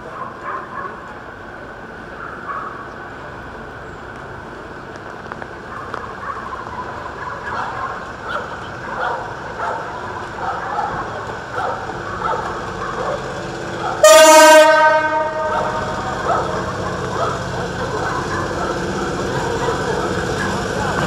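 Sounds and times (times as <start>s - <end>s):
loud locomotive horn chord: 13.9s - 16.8s.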